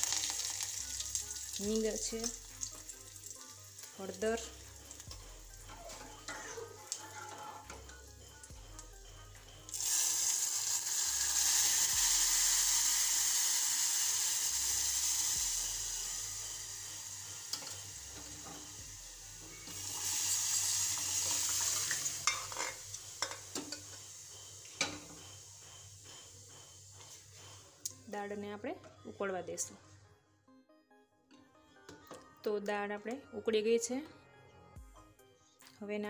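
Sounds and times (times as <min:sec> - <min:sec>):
loud sizzling hiss in hot oil: 0:00.0 - 0:03.8, 0:09.7 - 0:27.6.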